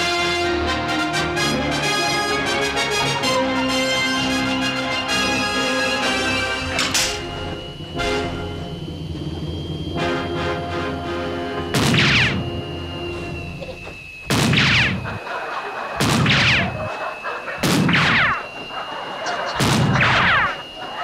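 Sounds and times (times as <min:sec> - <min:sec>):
high-pitched whine: 0:01.3 - 0:21.0
pistol shots: 0:16.0 - 0:16.7.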